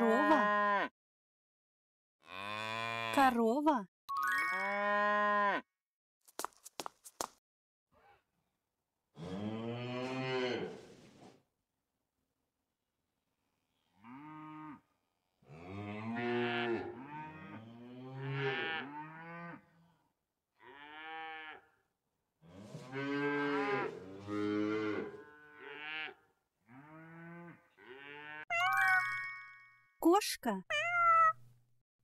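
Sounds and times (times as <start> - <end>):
cows mooing: 4.7 - 5.6, 9.2 - 10.8, 15.5 - 19.7, 20.6 - 21.7, 22.5 - 28.5.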